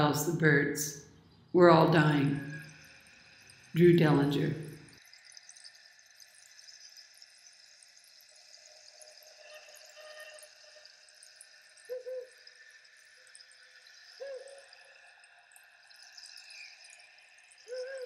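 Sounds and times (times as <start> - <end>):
faint ambient background: 0.0 - 18.0
low hoot-like calls: 11.8 - 12.5, 14.2 - 14.9, 17.7 - 18.0.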